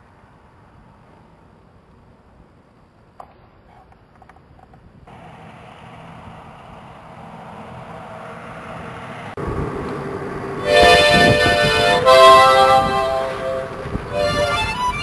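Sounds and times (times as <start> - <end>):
rushing noise: 5.1 - 15.0
music with held notes: 10.6 - 15.0.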